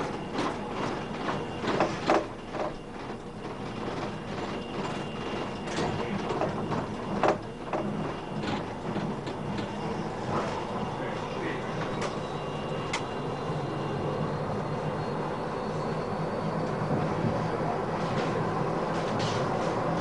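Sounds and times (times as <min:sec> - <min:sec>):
wheel and car body rattles: 0:00.0 - 0:09.8
tram running on track: 0:00.0 - 0:20.0.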